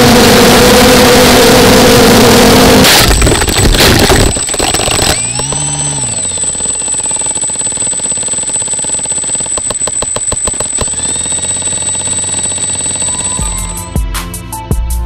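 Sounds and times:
drone motors winding down: 0.0s - 13.9s
high electronic whine: 0.0s - 13.9s
sharp clicks and ticks: 2.8s - 13.7s.

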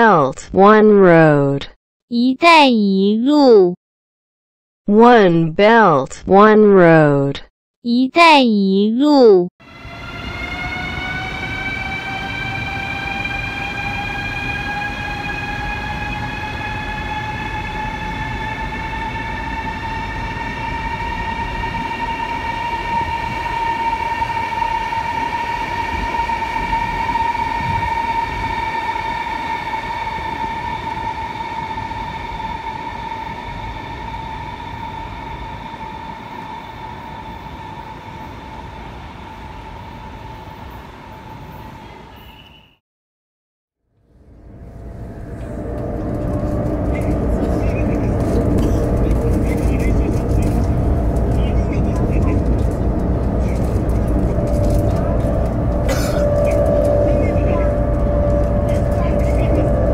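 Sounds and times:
electric train motors whining: 9.7s - 41.8s, 44.2s - 59.9s
train wheels rumbling: 9.7s - 41.8s, 44.6s - 59.9s.

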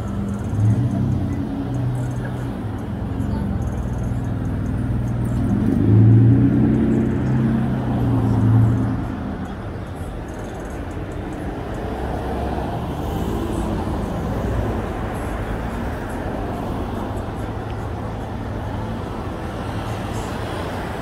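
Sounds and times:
road traffic noise: 0.0s - 21.0s
vehicle engine humming: 0.0s - 21.0s.

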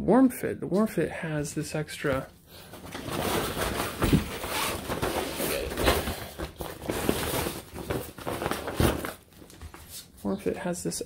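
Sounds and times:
fabric rustling and crinkling: 2.1s - 10.4s.

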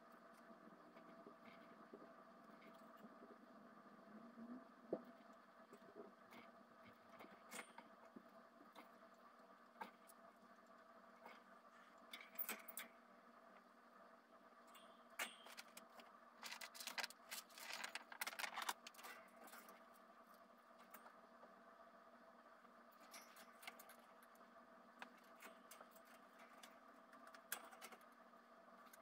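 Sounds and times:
low steady hum: 0.0s - 29.0s
items rattling in wire cage: 15.2s - 19.9s.

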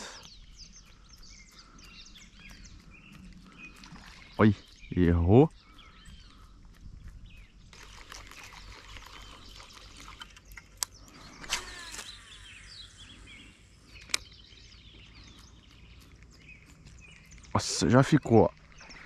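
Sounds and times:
birds chirping: 0.0s - 19.0s
sharp clicks: 10.2s - 12.4s, 13.9s - 14.4s.

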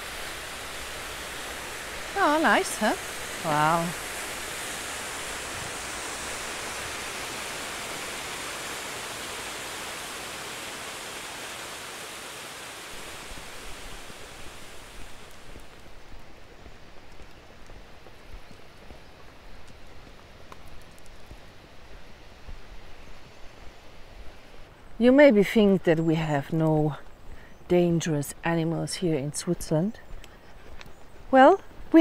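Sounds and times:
waterfall rushing: 0.0s - 15.6s
outdoor background: 0.0s - 32.0s.

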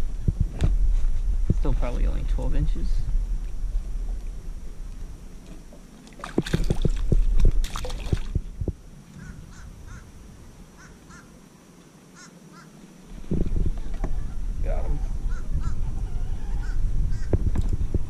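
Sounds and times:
bird calling faintly: 9.1s - 11.4s, 12.1s - 12.8s, 13.8s - 17.4s.

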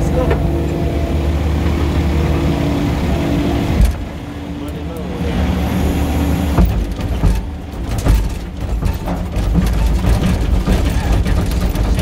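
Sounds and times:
diesel engine running: 0.0s - 12.0s
sharp knocks and clanks: 3.7s - 4.8s, 6.5s - 12.0s.

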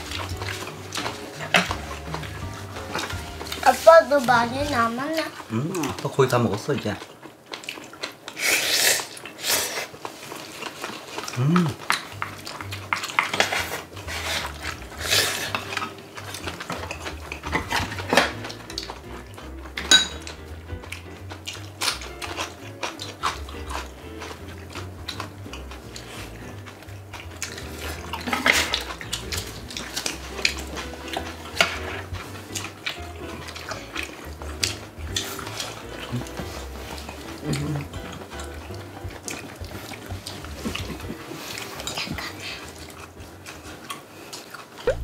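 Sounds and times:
utensils clinking against bowls: 0.0s - 7.0s, 11.3s - 44.0s.

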